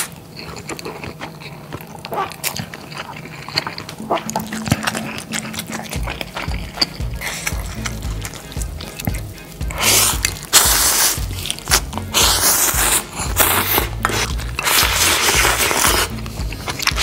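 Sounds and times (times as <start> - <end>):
noodles being slurped: 0.0 - 17.0
background music: 4.0 - 17.0.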